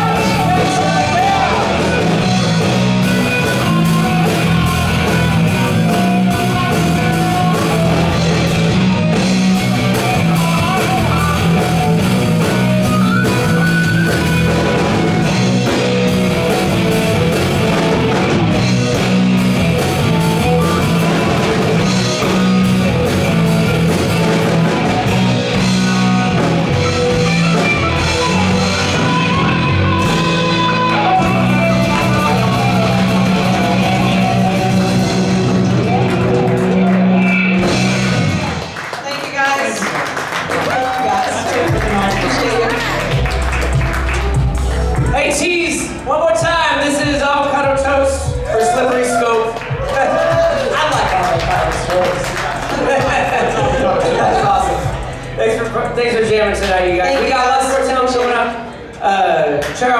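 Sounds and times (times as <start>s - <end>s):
electric guitar: 0.0s - 39.0s
live rock band: 0.0s - 59.9s.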